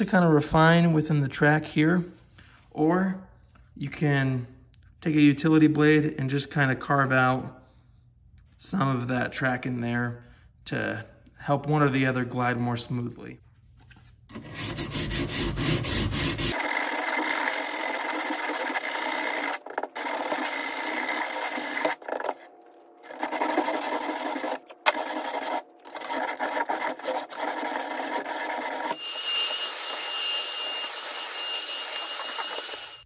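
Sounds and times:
sandpaper rasping on wood: 14.3s - 22.4s, 23.0s - 33.0s.

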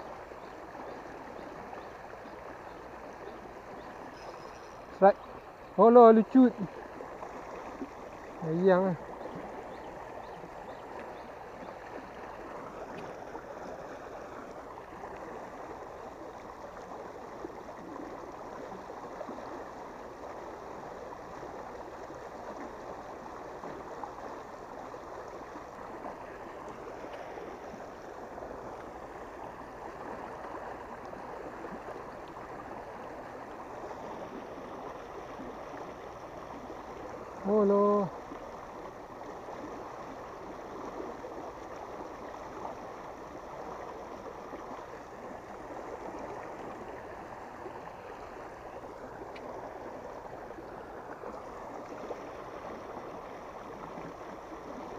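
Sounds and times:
water rushing and churning: 0.0s - 54.9s.

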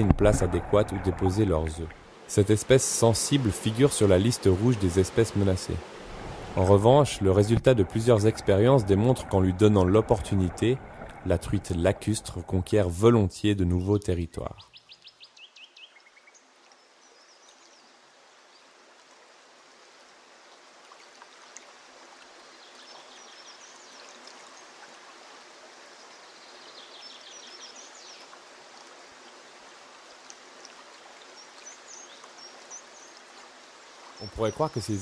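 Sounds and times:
river water running: 0.0s - 35.0s
small birds trilling: 34.1s - 35.0s.

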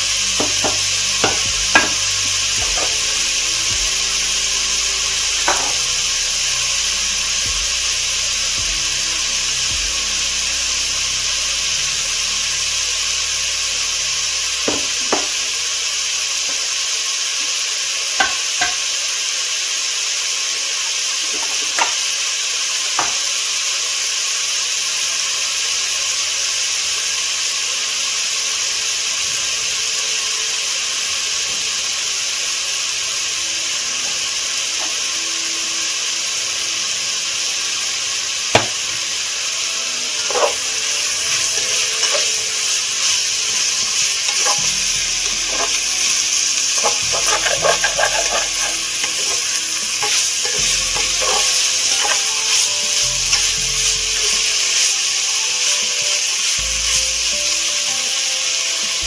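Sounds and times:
food sizzling in a frying pan: 0.0s - 59.0s
utensil knocking against pan: 0.4s - 2.0s, 38.6s - 38.8s, 46.8s - 49.4s.

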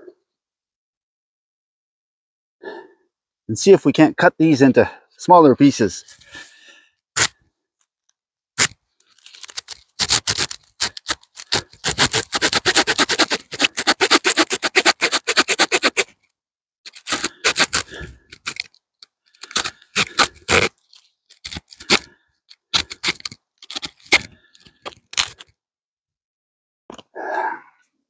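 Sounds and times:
small saw rasping through branch: 8.6s - 16.1s, 16.9s - 25.5s.

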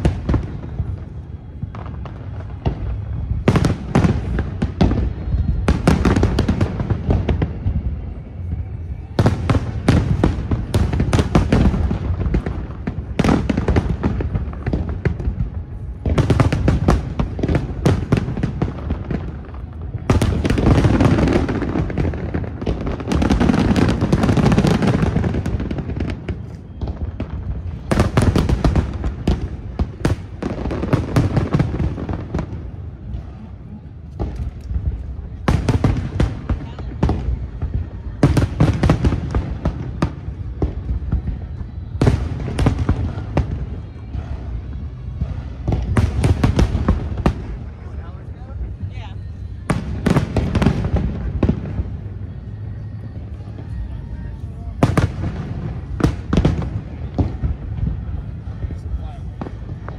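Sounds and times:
firework bangs and crackling: 0.0s - 59.9s.

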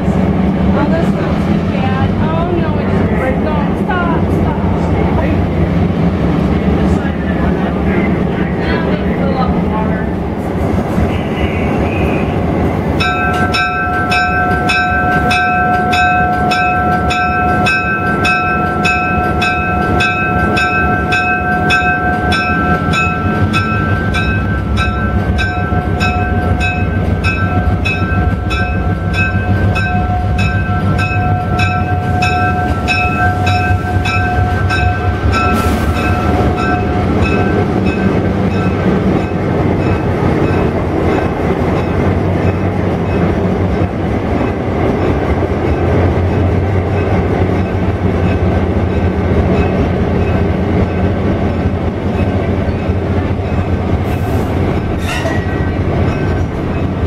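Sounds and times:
train wheels on rails: 0.0s - 57.0s
locomotive bell ringing: 12.9s - 54.1s, 54.7s - 57.0s.

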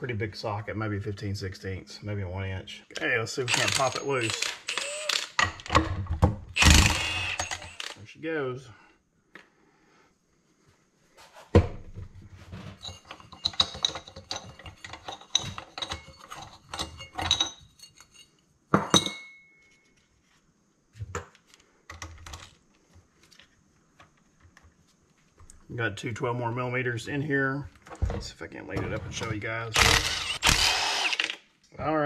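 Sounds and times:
metal tools clinking on workbench: 3.5s - 5.4s, 12.7s - 19.7s.

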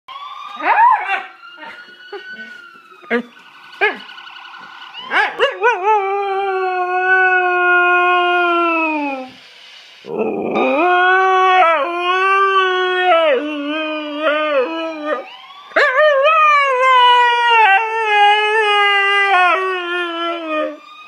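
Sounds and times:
dog howling: 10.1s - 20.8s.

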